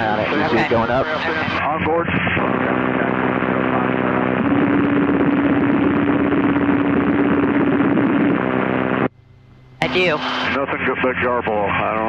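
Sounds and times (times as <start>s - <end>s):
buzzing hum: 0.0s - 1.6s, 2.4s - 11.7s
garbled radio transmission: 0.0s - 5.5s, 9.8s - 12.0s
steady radio tone: 0.0s - 9.1s, 9.8s - 12.0s.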